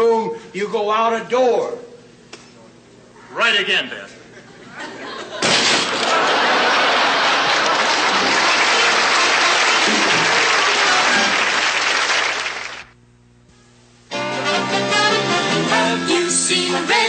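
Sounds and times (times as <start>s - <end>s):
audience applauding: 6.0s - 13.0s
band music: 8.0s - 11.6s, 14.1s - 17.0s.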